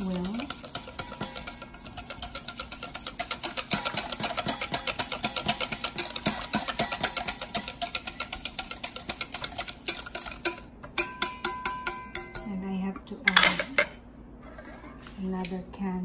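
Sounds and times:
utensil clicking against bowl: 0.1 - 12.5.

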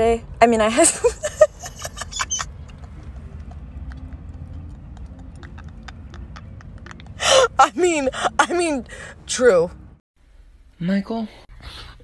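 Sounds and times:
faint irregular clicks: 2.6 - 7.2.

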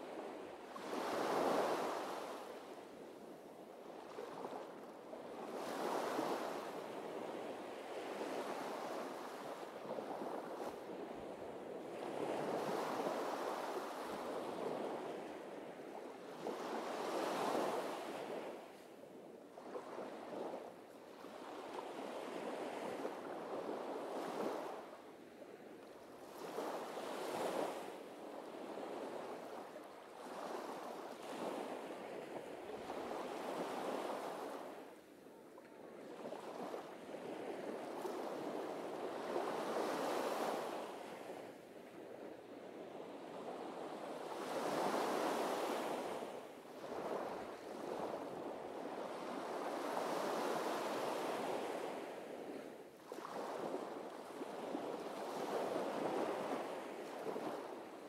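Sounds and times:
surf breaking on a beach: 36.1 - 42.4, 43.1 - 58.0.

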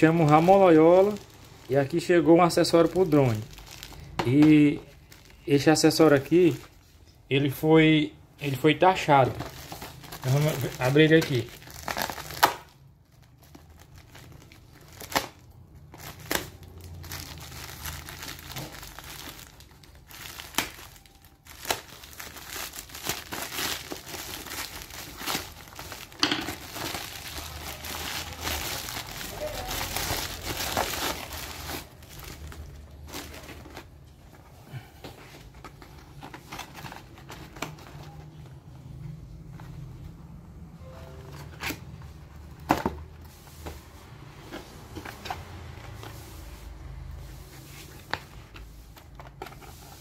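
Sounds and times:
packaging crinkling and tearing: 0.0 - 6.7, 9.2 - 34.4, 35.4 - 38.5.

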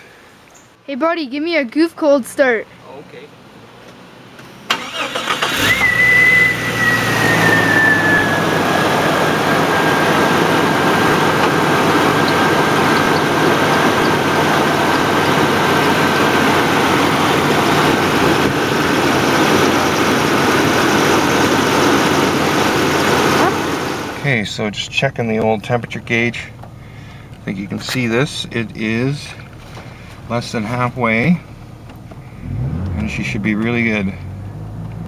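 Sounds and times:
car engine revving and idling: 3.4 - 35.0
high whine: 5.6 - 24.3
starter cranking: 9.8 - 23.4.

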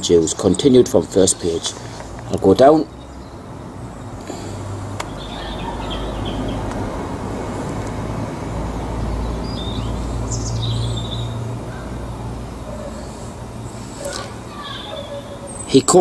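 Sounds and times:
high bird chirps: 5.1 - 6.7, 9.2 - 12.0, 12.6 - 15.9.

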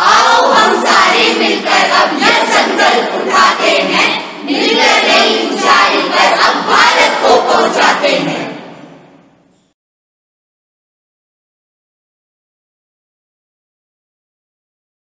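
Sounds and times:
young voices chanting: 0.0 - 8.6.

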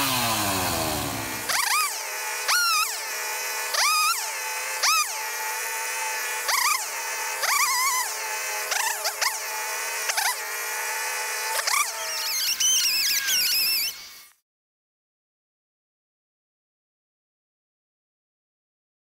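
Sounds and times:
chainsaw revving: 0.0 - 13.4
chainsaw cutting into branch: 0.0 - 14.4.

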